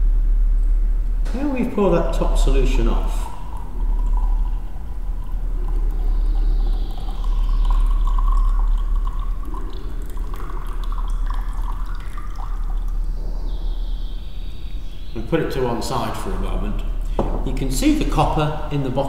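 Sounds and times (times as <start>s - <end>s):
steady low hum: 0.0s - 19.0s
liquid trickling into glass: 1.8s - 13.2s.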